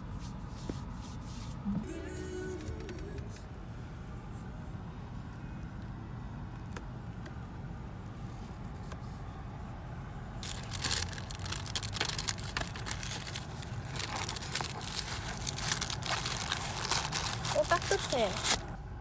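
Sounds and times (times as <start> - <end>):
low steady rumble: 0.0 - 19.0
packaging crackling and rustling: 10.4 - 18.8.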